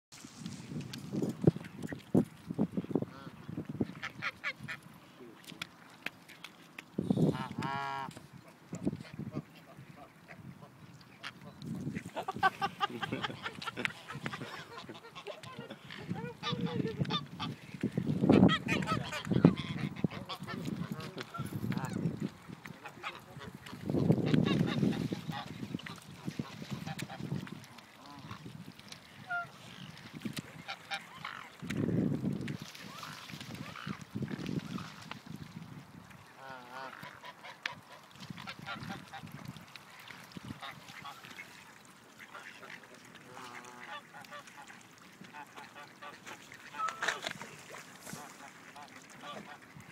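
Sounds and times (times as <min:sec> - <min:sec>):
swans and ducks calling: 0:02.8 - 0:32.0, 0:32.6 - 0:35.2, 0:36.2 - 0:49.9
geese honking: 0:45.4 - 0:47.2.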